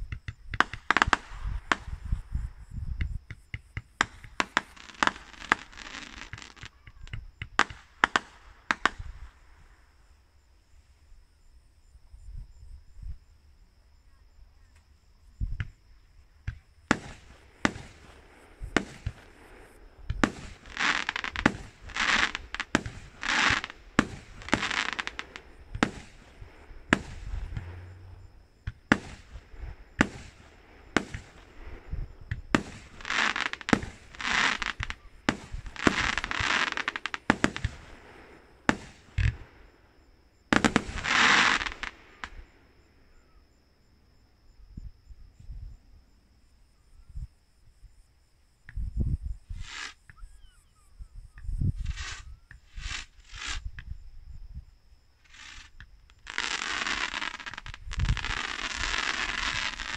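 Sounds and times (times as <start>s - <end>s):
fireworks bangs: 0.1s - 2.3s, 3.0s - 9.4s, 16.4s - 39.7s, 40.5s - 42.5s
fireworks bursts: 0.1s - 2.3s, 3.1s - 9.7s, 16.4s - 39.8s, 40.5s - 42.6s, 49.5s - 50.1s, 51.8s - 53.9s, 55.2s - 59.9s.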